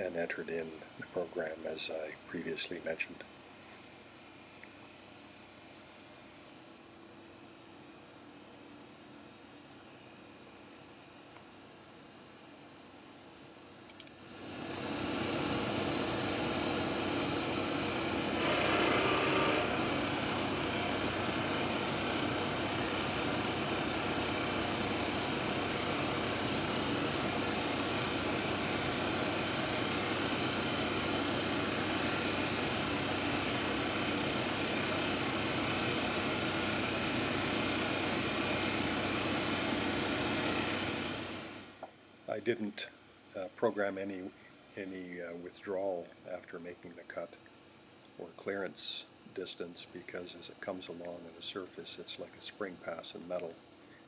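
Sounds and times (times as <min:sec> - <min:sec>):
lathe motor whirring: 0:14.3 - 0:41.9
cutter hissing on wood: 0:14.4 - 0:41.6.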